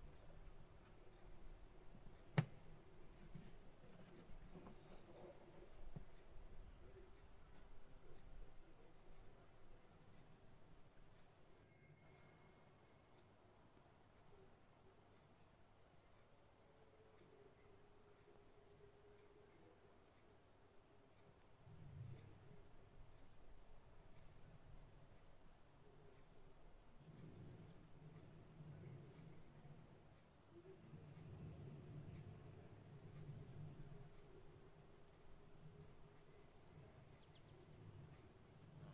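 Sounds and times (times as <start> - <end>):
soft low rustling: 0.0 - 9.4
crickets chirping: 0.0 - 38.9.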